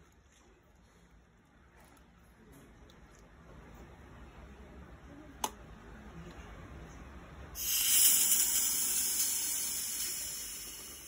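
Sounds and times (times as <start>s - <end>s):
espresso machine steam hiss: 7.6s - 11.0s.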